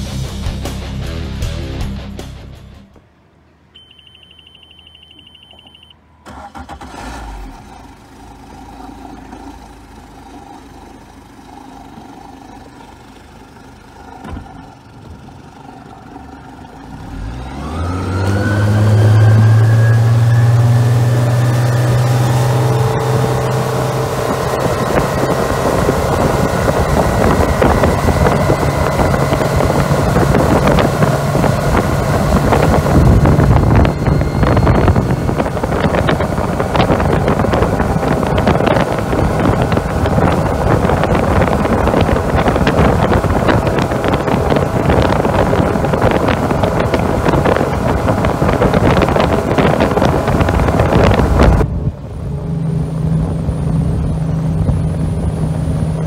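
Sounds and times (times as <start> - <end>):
high electronic beep: 3.8 - 6.0
outboard motor running: 8.1 - 56.0.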